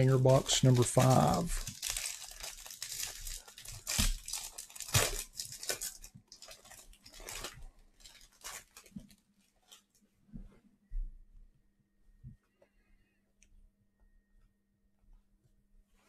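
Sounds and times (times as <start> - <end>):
cardboard and wrapping tearing: 0.2 - 9.8.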